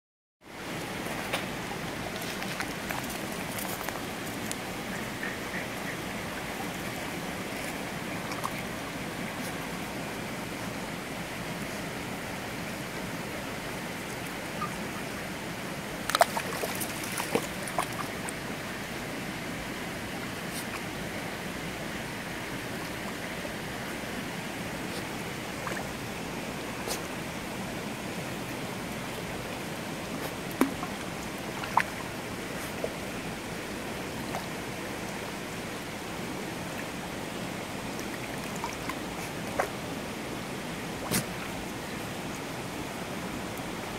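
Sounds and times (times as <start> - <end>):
stream flowing over stones: 0.5 - 43.9
dog splashing in water: 16.1 - 18.2.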